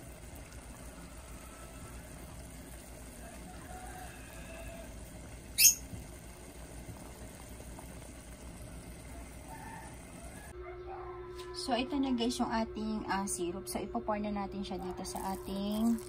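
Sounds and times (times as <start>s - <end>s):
syrup boiling in pot: 0.0s - 10.5s, 14.9s - 16.0s.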